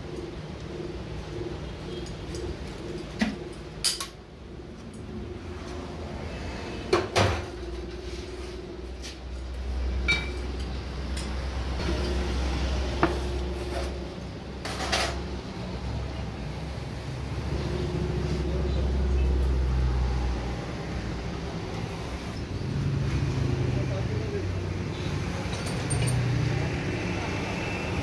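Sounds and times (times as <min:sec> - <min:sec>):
low machine rumble: 0:00.0 - 0:24.3
metal tools clinking: 0:25.4 - 0:26.4.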